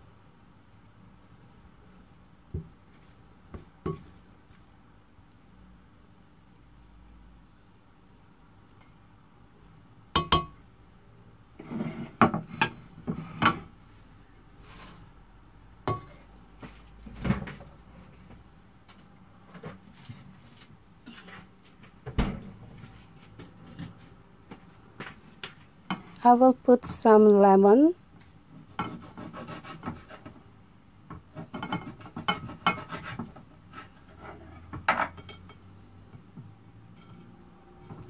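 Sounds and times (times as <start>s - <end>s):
spatula scraping a steel pan: 11.6s - 13.6s.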